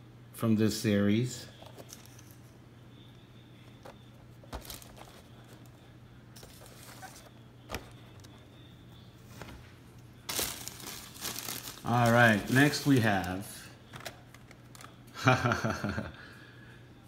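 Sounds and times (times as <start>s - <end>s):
faint steady hum: 0.0s - 17.0s
plastic bag rustling: 3.8s - 5.7s, 6.4s - 8.2s, 10.3s - 14.9s.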